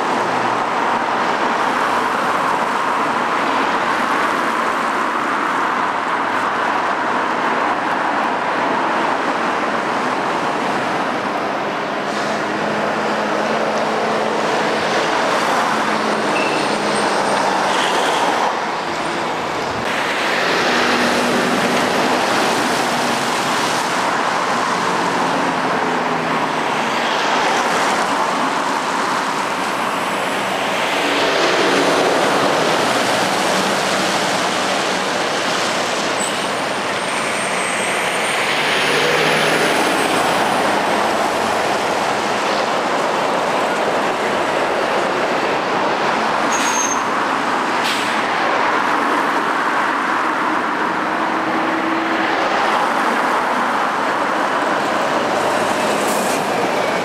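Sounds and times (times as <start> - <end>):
lorries and van driving past: 9.2 - 46.4
faint high squeal: 46.5 - 47.1.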